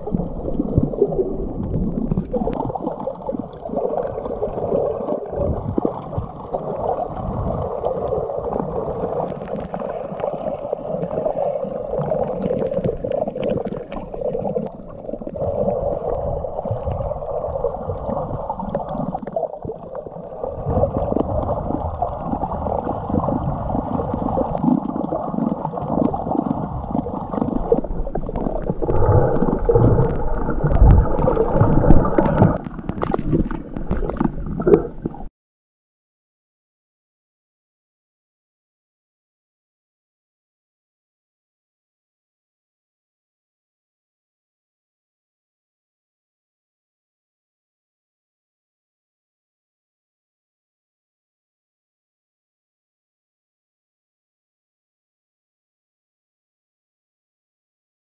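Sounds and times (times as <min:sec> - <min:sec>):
muffled underwater rushing: 0:00.0 - 0:35.3.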